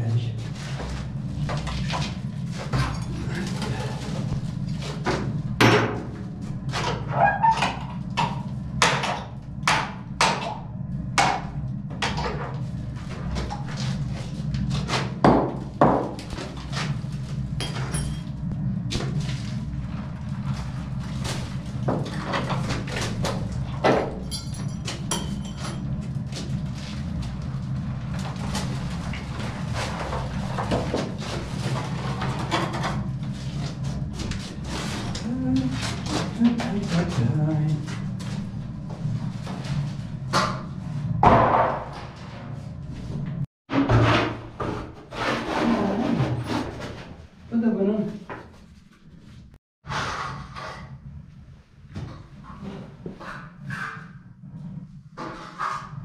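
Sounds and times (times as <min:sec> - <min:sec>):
low hum: 0:00.0 - 0:44.8
wooden boards knocking and banging: 0:14.9 - 0:16.3, 0:41.2 - 0:42.2.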